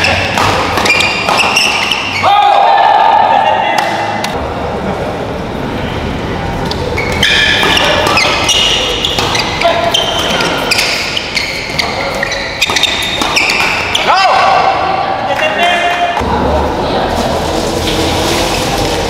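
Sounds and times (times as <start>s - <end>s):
racket hitting shuttlecock: 0.0s - 2.2s, 7.1s - 14.1s
shoes squeaking on court: 0.0s - 2.2s, 6.9s - 14.1s
sports hall background noise: 0.0s - 19.0s.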